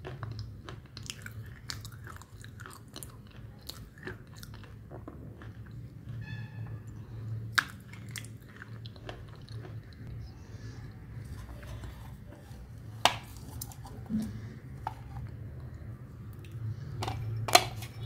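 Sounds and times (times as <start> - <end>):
chewing crumbly food: 0.0 - 17.2
steady low hum: 0.0 - 18.0.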